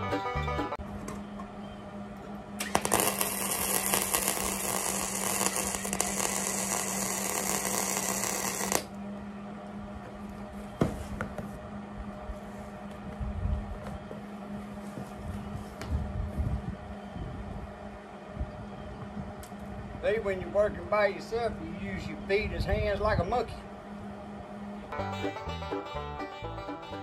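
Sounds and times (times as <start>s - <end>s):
steady low hum: 0.8s - 26.7s
welder arc crackling: 2.6s - 9.0s.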